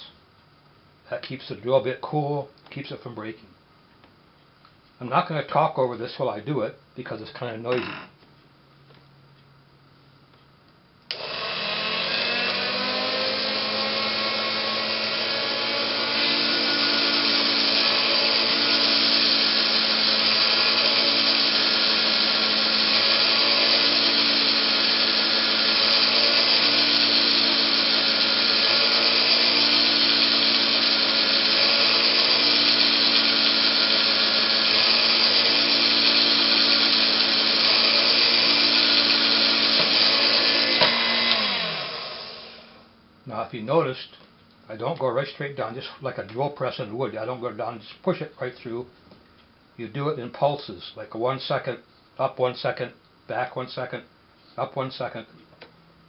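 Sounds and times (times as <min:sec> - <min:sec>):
drill press motor whine: 0:11.1 - 0:42.8.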